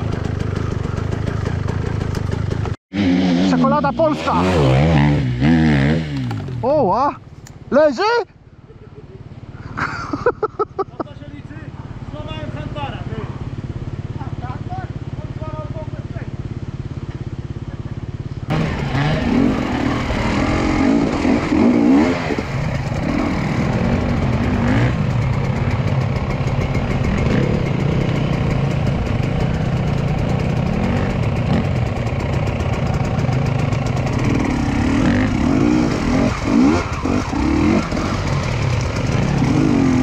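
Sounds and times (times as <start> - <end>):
dirt bike engines revving: 0.0 - 40.0.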